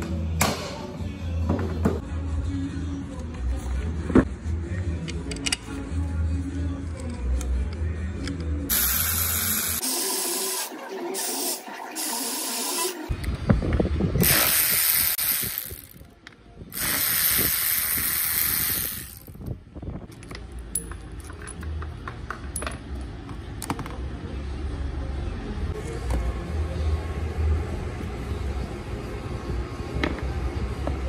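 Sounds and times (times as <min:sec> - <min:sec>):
clicks and knocks of handled parts: 0:05.0 - 0:05.7, 0:20.1 - 0:24.0.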